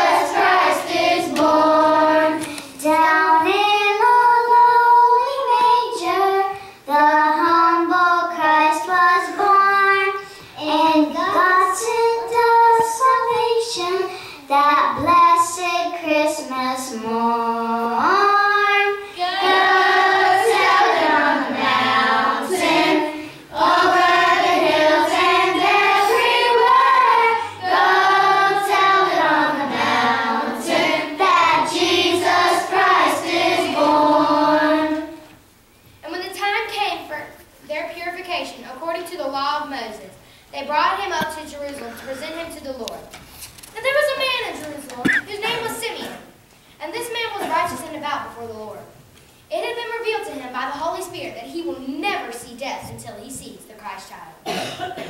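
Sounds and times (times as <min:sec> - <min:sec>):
children singing unaccompanied: 0:00.0 - 0:14.1, 0:14.9 - 0:35.3.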